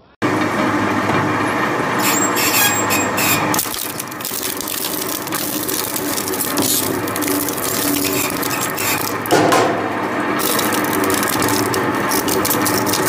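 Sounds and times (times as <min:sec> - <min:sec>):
shredder machine hum: 0:00.0 - 0:13.0
wood cracking and splintering: 0:02.0 - 0:09.5, 0:10.4 - 0:13.0.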